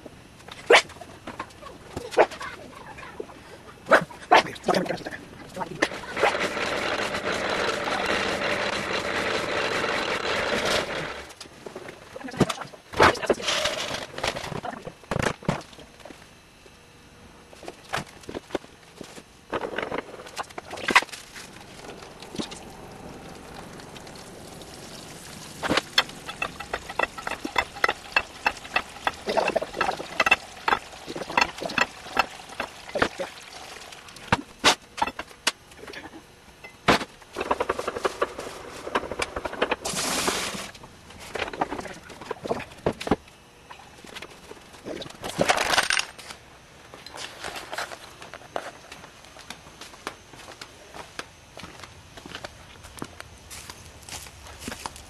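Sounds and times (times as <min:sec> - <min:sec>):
cider press clicking and knocking: 0:25.8 - 0:33.2.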